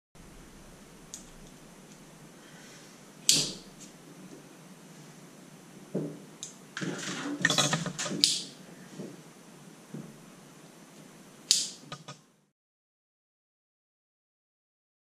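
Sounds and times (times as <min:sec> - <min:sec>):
steel wires rattling and scraping: 0:06.8 - 0:08.3
sharp click: 0:07.4 - 0:08.5, 0:11.5 - 0:12.2.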